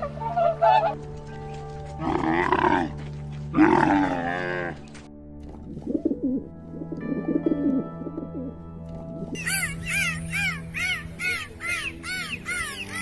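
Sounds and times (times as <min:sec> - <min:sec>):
background music: 0:00.0 - 0:13.0
camel bellowing: 0:02.0 - 0:04.8
pigeons cooing: 0:05.6 - 0:08.5.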